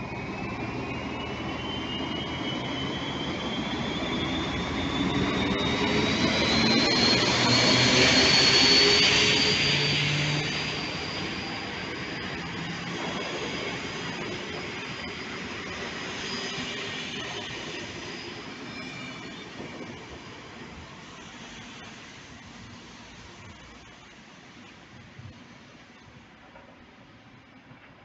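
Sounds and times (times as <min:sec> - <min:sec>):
high rising whine: 0:00.0 - 0:20.3
diesel locomotive passing: 0:00.0 - 0:24.6.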